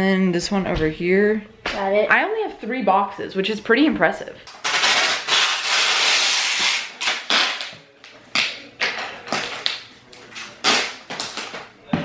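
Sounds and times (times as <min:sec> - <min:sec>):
packing tape ripping off roll: 0:04.5 - 0:07.8, 0:10.3 - 0:11.6.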